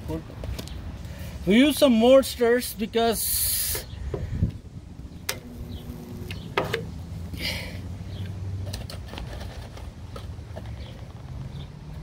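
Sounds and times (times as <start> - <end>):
low steady hum: 3.9 - 8.4
sharp welder clicks: 5.2 - 6.9.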